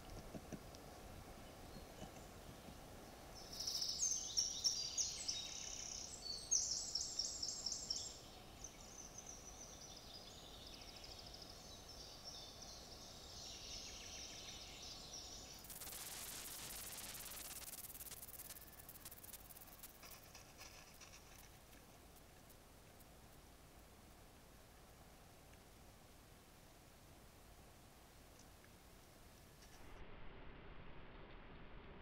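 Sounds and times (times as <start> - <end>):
songbirds singing: 0.0 - 22.6
steady hiss: 0.0 - 30.1.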